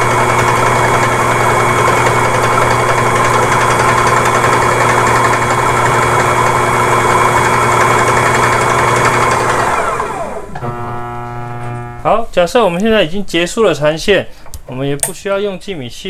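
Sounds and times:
electric motor humming: 0.0s - 12.1s.

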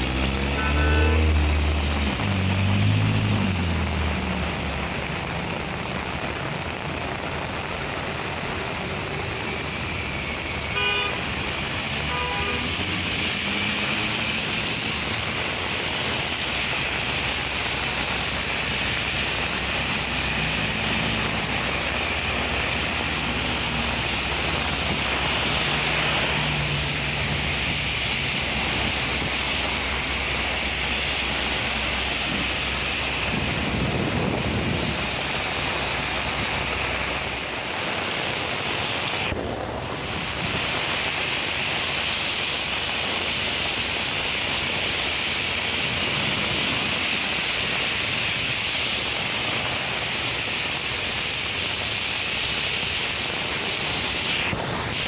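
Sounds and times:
heavy rain pouring: 0.0s - 55.0s
tyres swishing through water: 0.0s - 55.0s
car horn toot: 0.5s - 1.4s, 10.7s - 11.3s, 12.0s - 12.8s.

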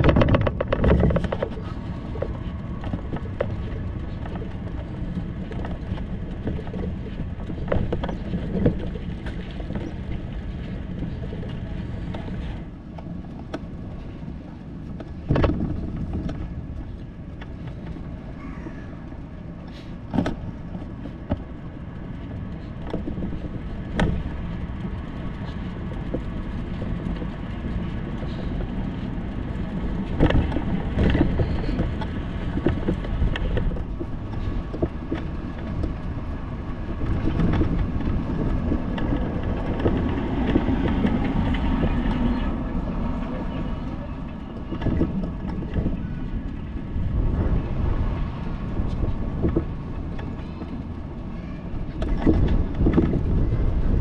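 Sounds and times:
sharp knocks and rattles: 0.0s - 19.2s, 20.1s - 43.6s
road traffic noise: 0.0s - 54.0s.

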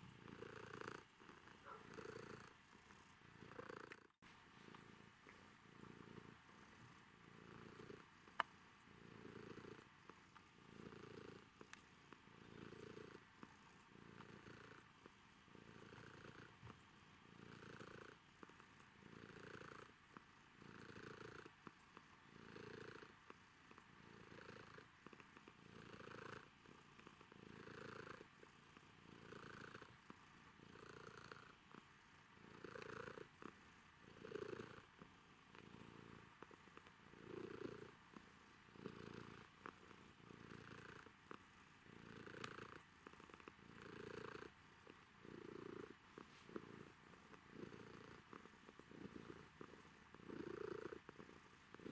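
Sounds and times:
cat purring: 0.0s - 51.9s.

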